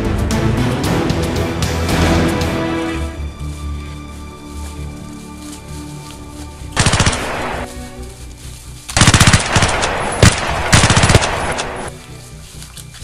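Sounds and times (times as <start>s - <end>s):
background music: 0.0s - 13.0s
automatic gunfire bursts: 6.8s - 7.6s, 9.0s - 11.9s.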